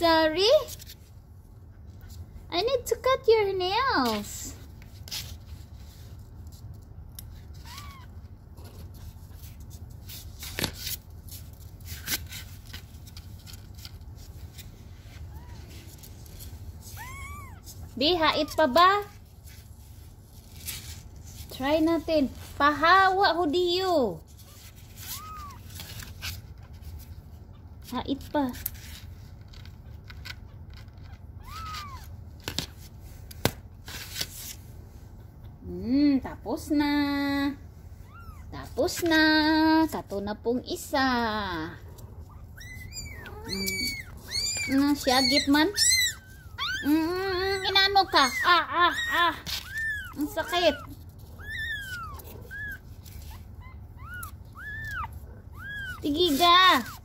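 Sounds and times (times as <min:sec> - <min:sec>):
handling rustle: 0:04.0 - 0:23.4, 0:24.0 - 0:34.9, 0:42.1 - 0:57.0
kitten mewing: 0:42.0 - 0:57.0.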